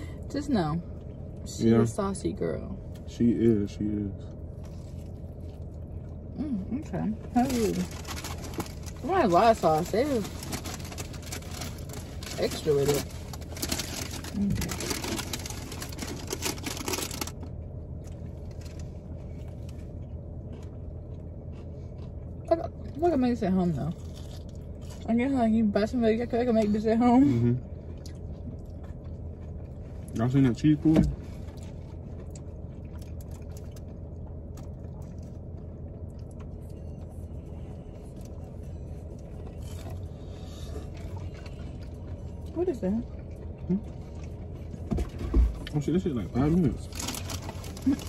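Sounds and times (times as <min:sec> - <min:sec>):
car cabin hum: 0:00.0 - 0:48.0
dense crackle: 0:07.3 - 0:19.9, 0:46.4 - 0:48.0.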